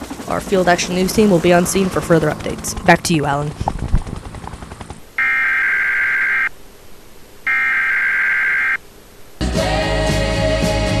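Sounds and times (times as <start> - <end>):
electronic telephone ringer trilling: 5.2 - 6.5, 7.4 - 8.8
music: 9.4 - 11.0.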